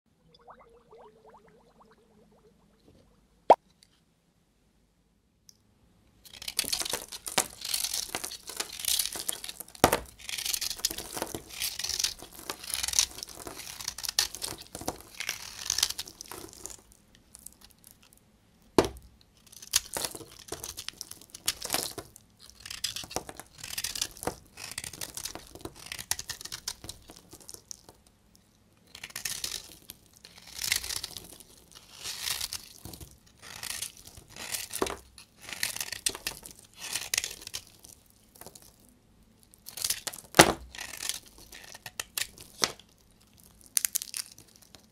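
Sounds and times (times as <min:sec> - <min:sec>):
knife scraping through soap: 0:33.4 - 0:37.6, 0:40.7 - 0:42.4
soap cracking: 0:39.6 - 0:44.9.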